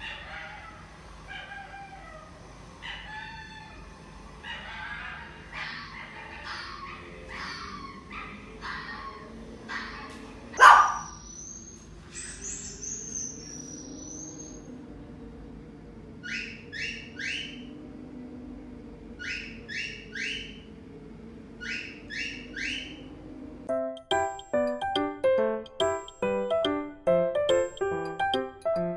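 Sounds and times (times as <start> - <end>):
bird chirps: 10.6 - 14.7, 16.2 - 17.7, 19.2 - 20.7, 21.6 - 23.1.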